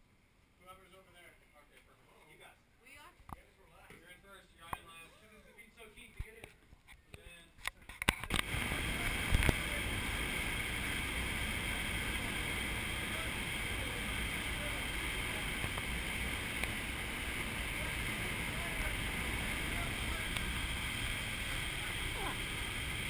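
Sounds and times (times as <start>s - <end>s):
rush of air in wind tunnel: 8.4s - 23.0s.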